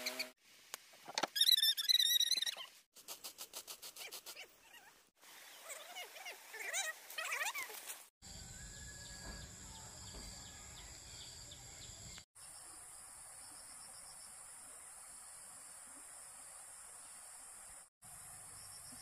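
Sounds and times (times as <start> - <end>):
birds chirping: 8.2 - 12.2.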